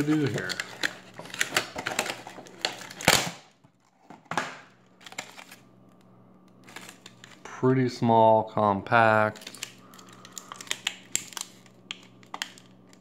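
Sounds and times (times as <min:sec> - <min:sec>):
packaging crinkling and rustling: 0:00.0 - 0:05.7, 0:06.6 - 0:07.5, 0:09.2 - 0:13.0.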